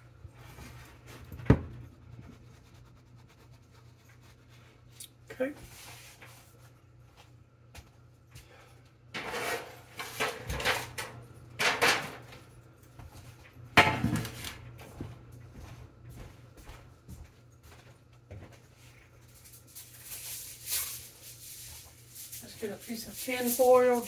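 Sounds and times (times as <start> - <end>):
baking sheet rattling and scraping: 9.1 - 12.5, 13.8 - 14.6, 18.9 - 24.0.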